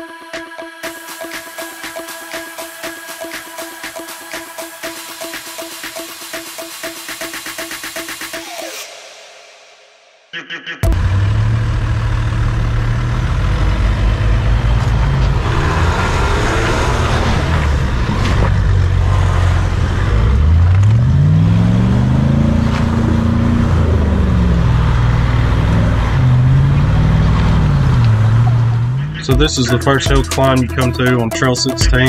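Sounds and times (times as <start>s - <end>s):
engine pulling under load: 10.9s - 29.3s
tires grinding over stones: 10.9s - 29.3s.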